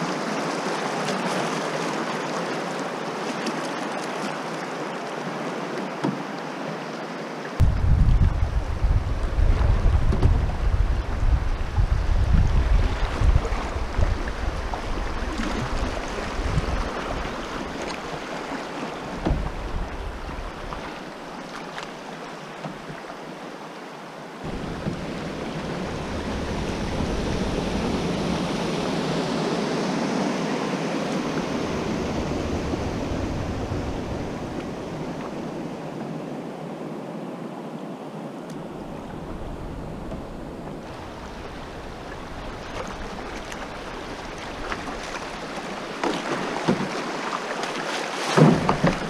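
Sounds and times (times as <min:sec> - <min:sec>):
wind buffeting microphone: 0:07.6 - 0:18.2, 0:19.1 - 0:20.9, 0:24.4 - 0:36.3, 0:38.5 - 0:45.8
river water rushing over gravel: 0:24.2 - 0:29.7, 0:40.8 - 0:49.0.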